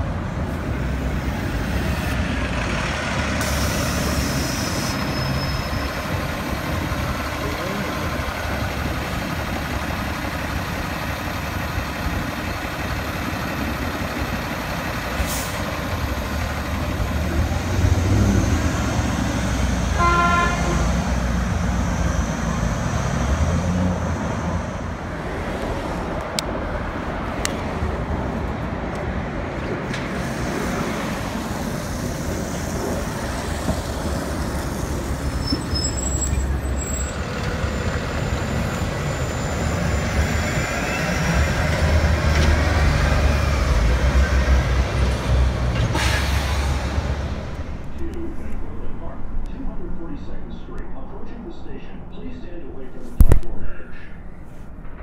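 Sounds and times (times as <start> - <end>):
bus diesel engines idling: 0.0 - 55.0
street traffic: 0.0 - 55.0
short horn toot: 20.0 - 20.9.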